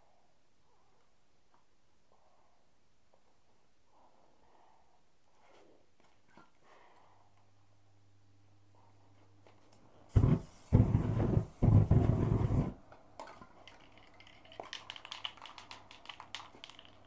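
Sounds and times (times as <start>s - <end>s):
flame torch rushing hiss: 10.1s - 12.8s.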